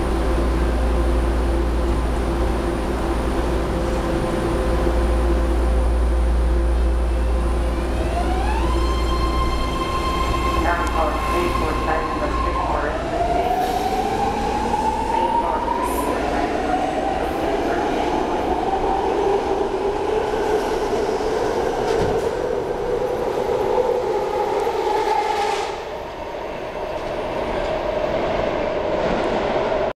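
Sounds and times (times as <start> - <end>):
train two-tone whine: 0.0 - 29.3.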